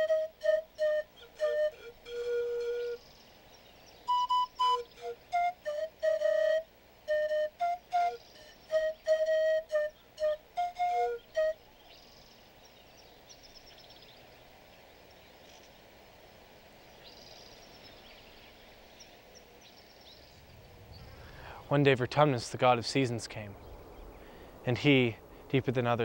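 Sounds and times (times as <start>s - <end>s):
flute playing short notes: 0.0s - 3.0s, 4.1s - 11.6s.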